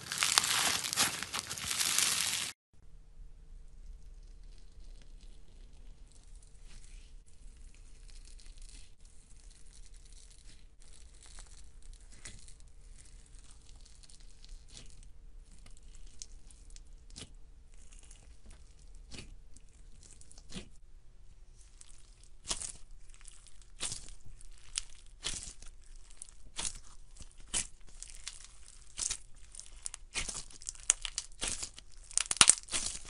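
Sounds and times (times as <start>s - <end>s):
crunchy slime squeezed: 0.0s - 2.5s, 21.8s - 33.0s.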